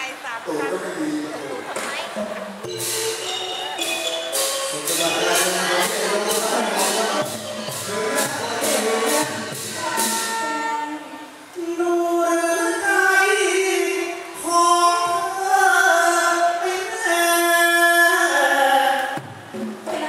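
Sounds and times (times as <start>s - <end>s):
sharp percussion strokes: 2.2s - 10.8s.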